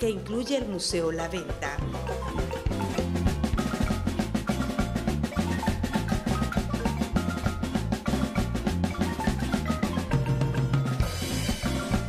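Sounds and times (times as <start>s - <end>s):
bass line: 0.0s - 12.0s
drums and percussion: 0.0s - 12.0s.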